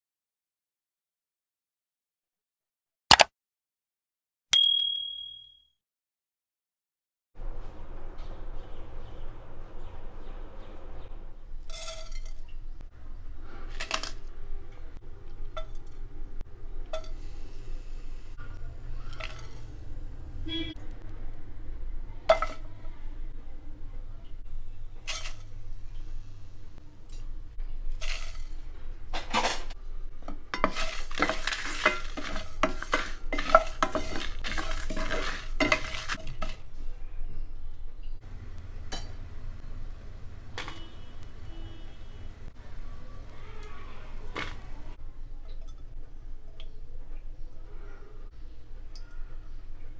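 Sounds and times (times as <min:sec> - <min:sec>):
plastic spoon scraping in pan: 0:25.1 - 0:25.6, 0:27.9 - 0:28.6, 0:30.5 - 0:36.6.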